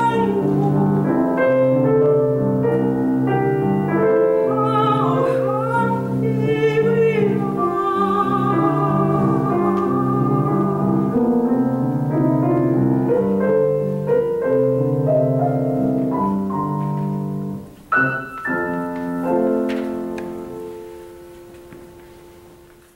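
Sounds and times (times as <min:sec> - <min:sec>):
soprano singing with vibrato: 0:00.0 - 0:11.6
grand piano playing: 0:00.0 - 0:22.9.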